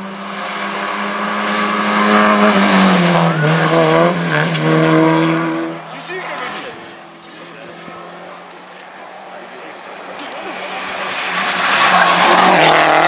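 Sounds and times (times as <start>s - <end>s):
rally car engine at high revs: 0.0s - 13.0s
tyre squeal: 2.6s - 4.7s.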